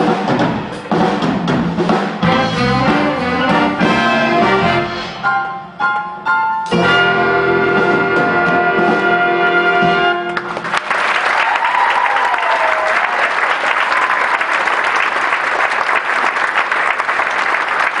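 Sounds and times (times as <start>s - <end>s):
jazz big band chord: 0.0s - 10.7s
audience applauding and cheering: 10.3s - 18.0s.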